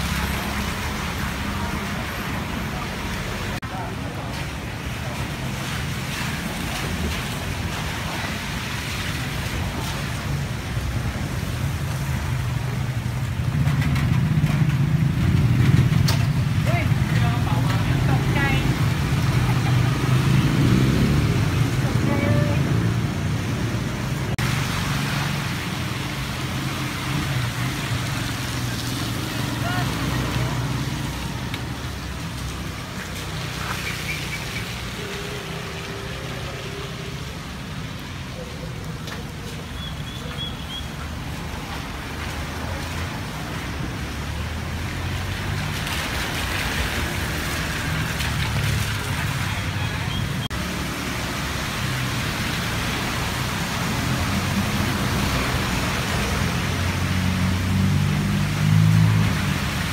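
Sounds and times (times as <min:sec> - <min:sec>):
traffic rumbling on wet road: 0:00.0 - 0:59.9
passing vehicle engine hum: 0:12.6 - 0:39.0, 0:41.3 - 0:59.9.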